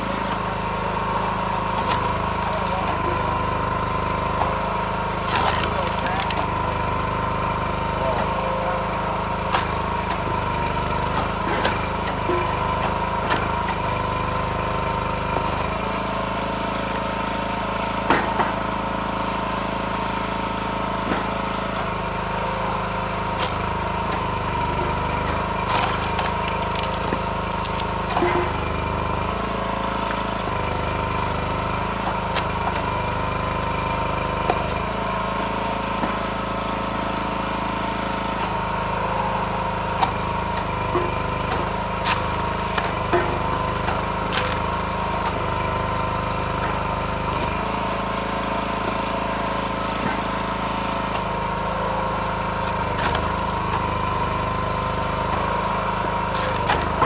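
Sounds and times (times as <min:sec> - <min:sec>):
log splitter engine running: 0:00.0 - 0:57.0
firewood splitting knocks: 0:00.2 - 0:06.6, 0:09.2 - 0:14.0, 0:18.0 - 0:18.8, 0:20.9 - 0:21.9, 0:22.8 - 0:57.0.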